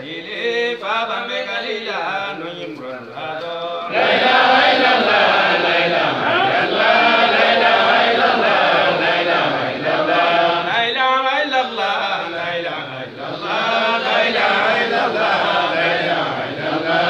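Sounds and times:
group of men chanting: 3.9s - 17.0s
man chanting: 10.6s - 16.5s.

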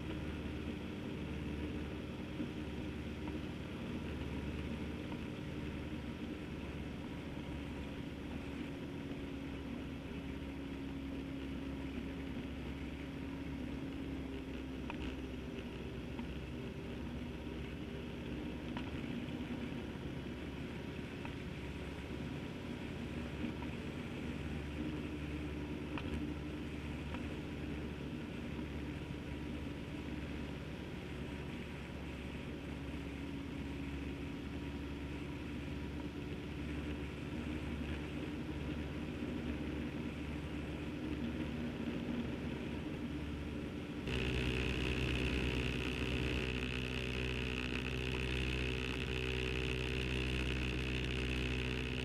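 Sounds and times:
wind and road noise: 0.0s - 52.0s
motorcycle engine running: 44.0s - 52.0s.

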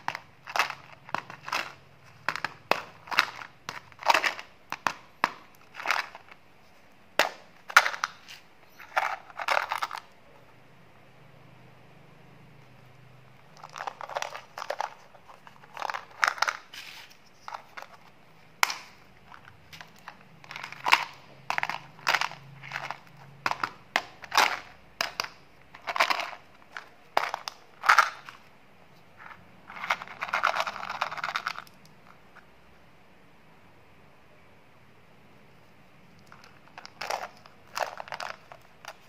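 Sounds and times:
candy tablets rattling: 0.0s - 6.4s, 7.2s - 10.2s, 13.4s - 28.5s, 29.2s - 32.0s, 36.2s - 39.0s
plastic bottles crinkling and clicking: 0.0s - 6.4s, 13.5s - 28.5s, 36.2s - 39.0s.

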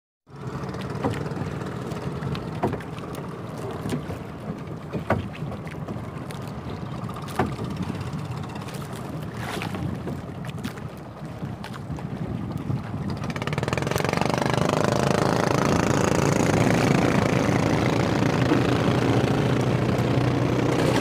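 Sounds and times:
boat motor running: 0.3s - 21.0s
sharp knocks on boat: 0.6s - 10.9s
wind buffeting microphone: 0.6s - 21.0s.

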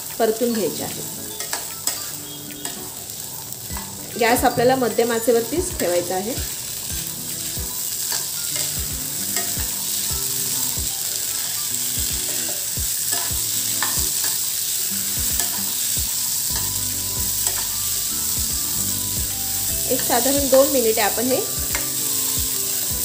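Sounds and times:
chickpeas sizzling in oil: 0.0s - 23.0s.

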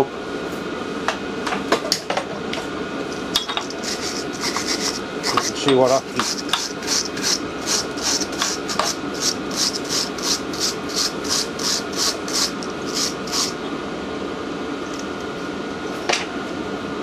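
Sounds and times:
heater fan hum: 0.0s - 17.0s
wire brush scrubbing metal: 3.6s - 13.6s.

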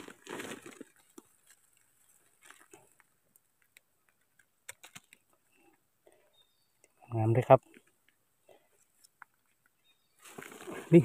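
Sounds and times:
hands rustling dead leaves: 0.0s - 3.1s, 10.2s - 11.0s.

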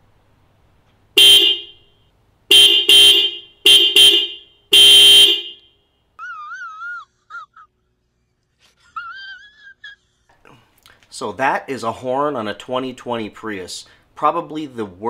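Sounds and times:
thin high car horn honks: 1.2s - 5.8s.

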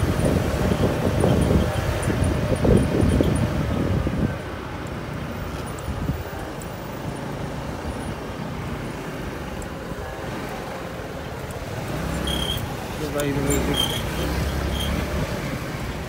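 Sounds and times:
wind buffeting microphone: 0.0s - 6.8s
road and engine noise: 0.0s - 16.0s.

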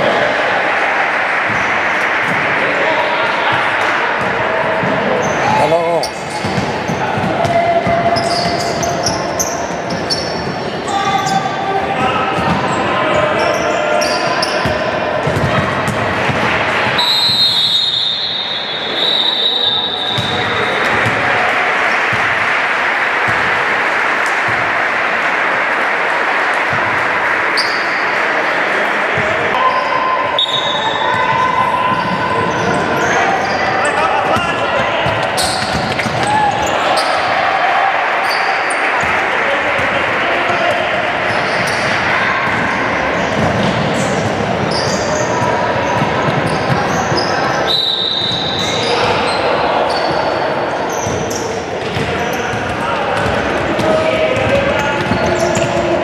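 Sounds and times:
players' voices: 0.0s - 56.0s
sneaker squeaks on hardwood: 7.8s - 11.4s, 19.0s - 21.1s, 35.1s - 37.2s, 43.3s - 52.4s
referee's whistle blast: 17.0s - 20.9s, 29.6s - 31.1s, 47.6s - 48.8s
spectators clapping: 20.9s - 29.0s.

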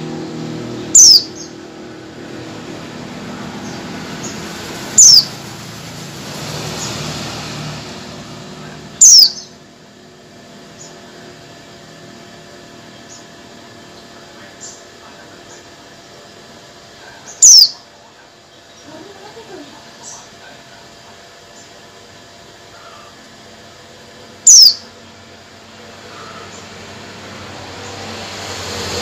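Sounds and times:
bird giving sharp calls: 0.8s - 1.6s, 3.6s - 5.5s, 9.0s - 9.6s, 17.2s - 17.9s, 24.4s - 25.0s, 26.0s - 26.7s
faint bird chirps: 1.0s - 1.6s, 5.0s - 5.3s, 9.0s - 9.6s, 17.2s - 17.9s, 24.4s - 25.0s, 26.0s - 26.6s.

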